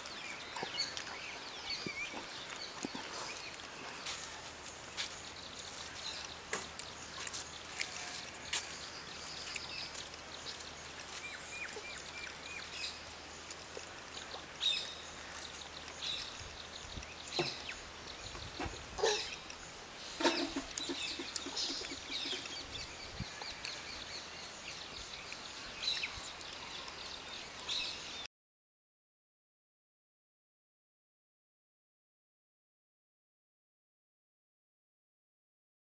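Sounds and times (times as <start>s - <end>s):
small birds chirping: 0.0s - 28.3s.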